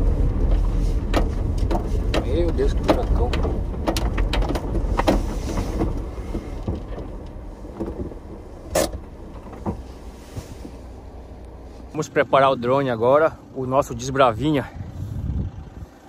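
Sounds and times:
cab rattling clicks and knocks: 0.0s - 11.6s
truck rumbling over gravel: 0.0s - 16.0s.

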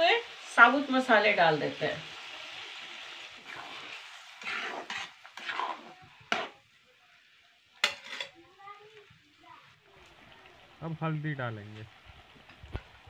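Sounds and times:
masala sizzling in a pan: 0.0s - 13.0s
metal spatula scraping and stirring: 2.6s - 6.7s, 7.8s - 8.4s.

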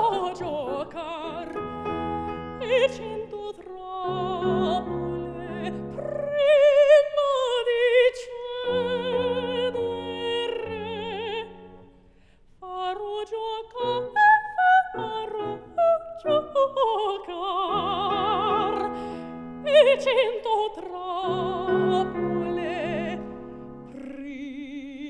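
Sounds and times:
piano accompaniment: 0.0s - 7.3s, 13.8s - 20.3s
woman singing opera: 0.0s - 11.9s, 12.6s - 25.0s.

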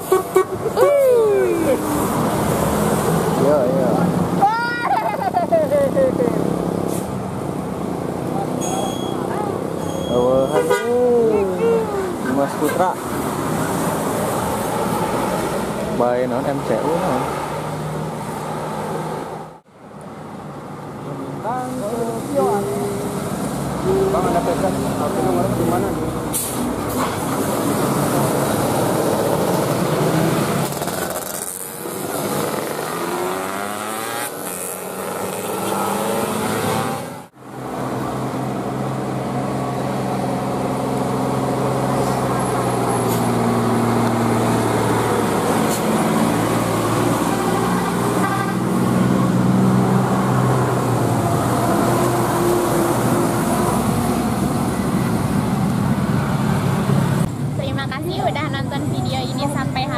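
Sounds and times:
multi-tone air horns: 10.5s - 11.0s, 47.8s - 48.7s.

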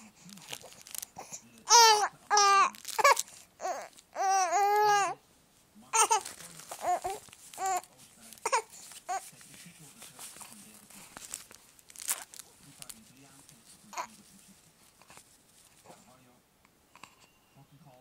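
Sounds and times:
baby cooing and babbling: 0.0s - 5.2s, 5.9s - 9.3s, 13.9s - 14.1s.

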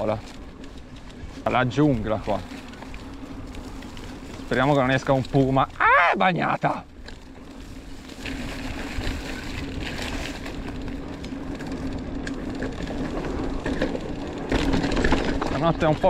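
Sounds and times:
bike tyres on dirt: 0.0s - 16.0s
wind rumble on microphone: 6.8s - 16.0s.

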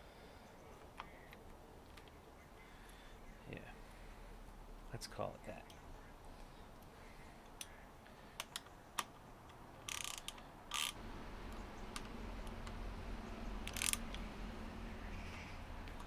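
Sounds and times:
sharp plastic clicks: 7.4s - 11.0s, 13.6s - 14.3s.

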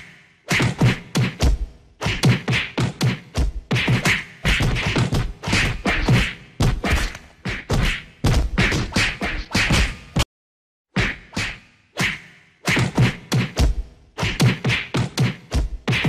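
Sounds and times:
punch sound effects: 11.4s - 16.0s.

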